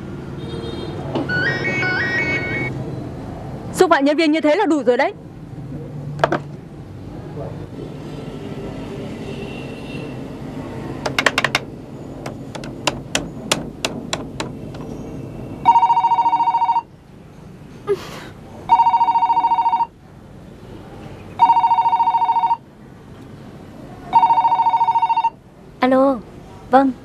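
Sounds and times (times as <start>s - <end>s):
telephone ringing: 1.3s - 2.7s, 15.6s - 16.9s, 18.7s - 20.0s, 21.4s - 22.6s, 24.1s - 25.4s.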